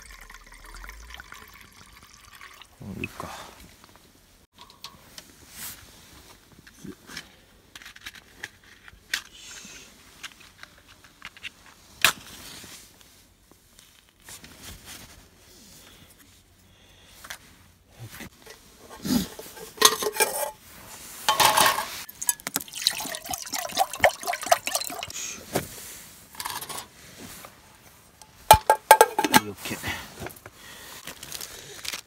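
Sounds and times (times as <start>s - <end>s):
water pouring: 0.0s - 3.3s, 21.3s - 25.2s
metal cookware clinking: 4.6s - 5.0s, 18.9s - 20.6s, 21.3s - 25.0s, 28.5s - 29.5s.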